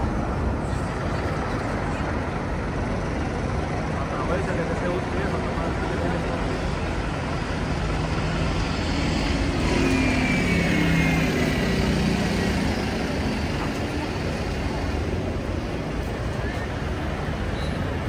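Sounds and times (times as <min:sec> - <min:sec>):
city street traffic: 0:00.0 - 0:18.0
vehicle engine passing: 0:07.5 - 0:15.4.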